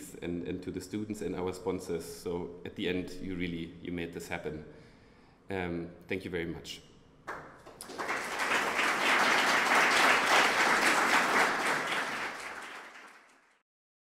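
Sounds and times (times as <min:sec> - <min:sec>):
audience applauding: 0:07.3 - 0:13.6.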